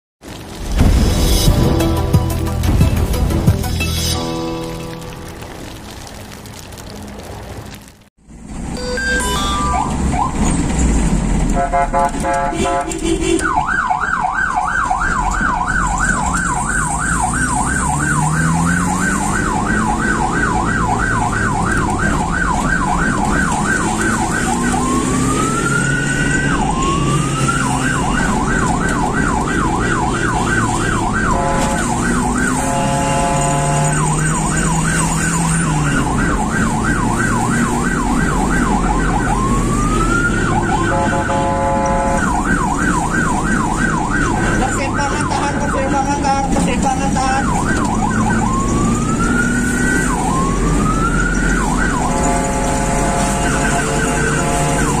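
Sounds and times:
ambulance siren: 0:08.8 - 0:10.8, 0:11.6 - 0:55.0
vehicle engine accelerating: 0:17.0 - 0:29.7, 0:46.5 - 0:55.0
pulsed horn tones: 0:31.2 - 0:34.0, 0:40.6 - 0:42.3, 0:52.0 - 0:55.0.

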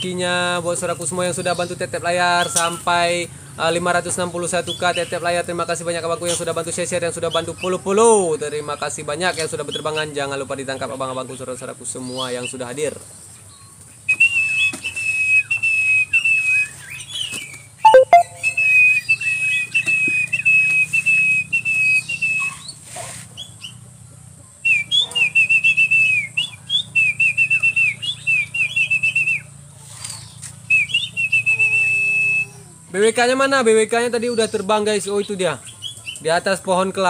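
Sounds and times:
person whistling: 0:17.9 - 0:19.0, 0:31.3 - 0:32.5.

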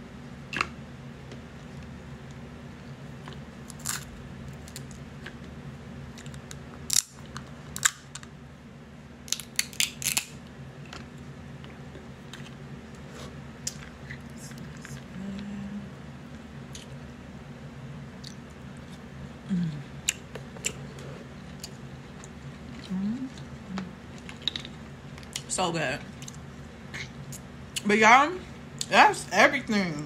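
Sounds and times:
steady low hum: 0:00.0 - 0:30.0
crab shells cracking: 0:03.7 - 0:05.4, 0:06.1 - 0:08.3, 0:09.3 - 0:10.4.

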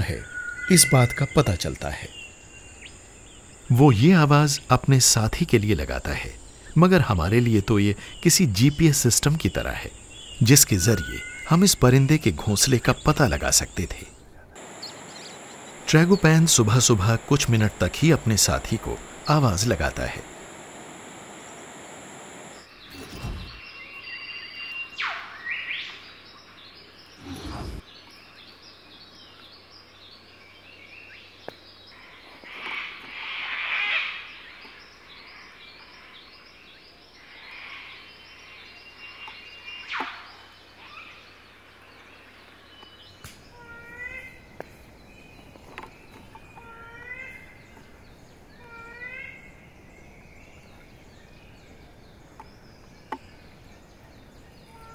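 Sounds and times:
small birds chirping: 0:00.0 - 0:25.0, 0:25.6 - 0:33.2, 0:34.2 - 0:54.9
bird curling note: 0:14.6 - 0:23.6.

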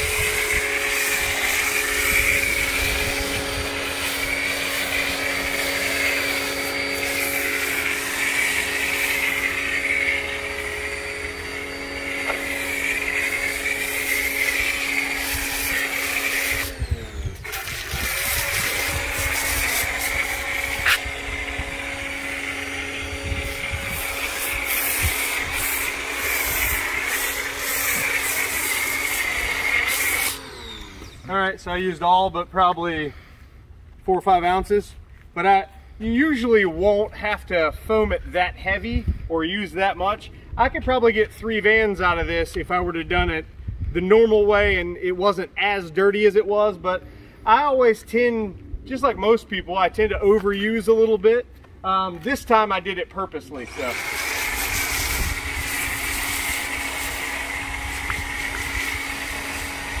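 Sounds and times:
electric pressure washer running: 0:00.0 - 0:31.6, 0:53.5 - 1:00.0
foam cannon spraying hiss: 0:23.3 - 0:30.4, 0:53.8 - 1:00.0.

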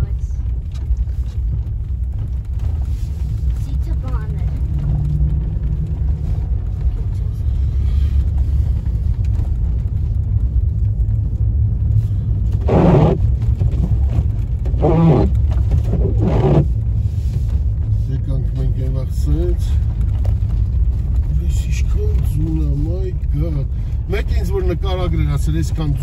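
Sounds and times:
car rumbling over snowy road: 0:00.0 - 0:26.0
short pitched sounds: 0:12.6 - 0:13.2, 0:14.8 - 0:16.7.

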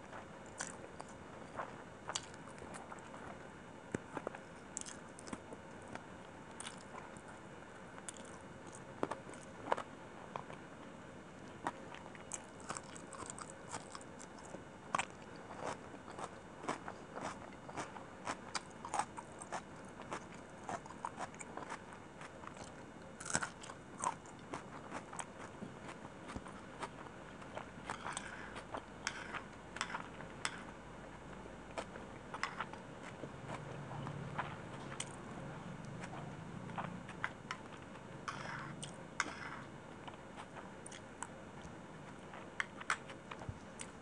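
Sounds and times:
wet chewing and mouth sounds: 0:04.0 - 0:07.2, 0:11.5 - 0:30.7.

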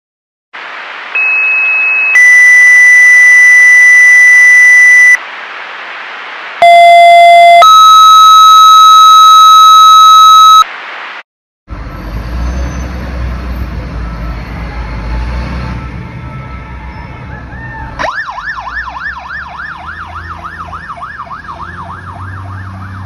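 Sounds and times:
radio hiss: 0:04.7 - 0:07.6, 0:10.2 - 0:11.2
two-tone paging tones: 0:06.6 - 0:10.7.

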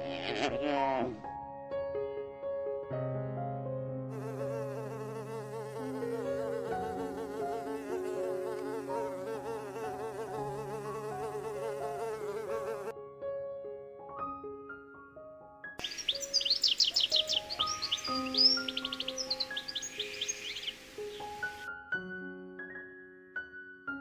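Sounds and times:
bumblebee buzzing: 0:04.1 - 0:12.9, 0:15.8 - 0:21.7
soft background music: 0:04.2 - 0:24.0.

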